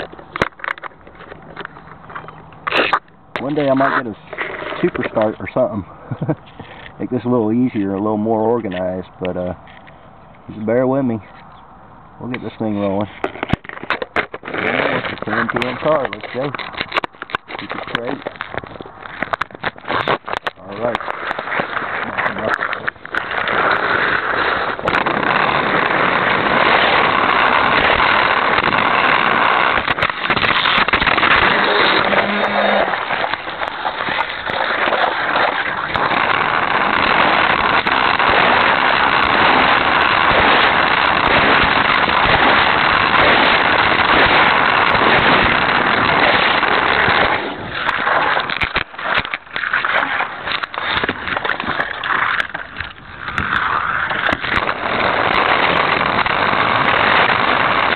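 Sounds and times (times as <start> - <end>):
toy car motor whirring: 21.1 - 57.9.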